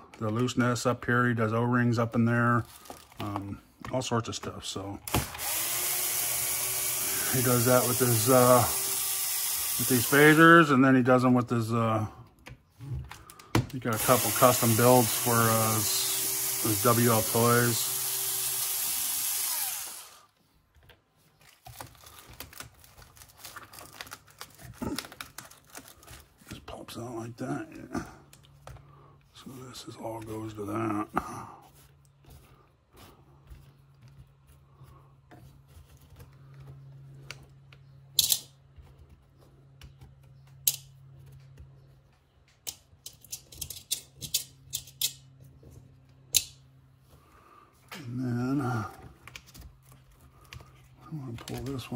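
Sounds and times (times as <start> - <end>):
small electric motor whirring: 5.1 - 10.6, 13.9 - 20.4.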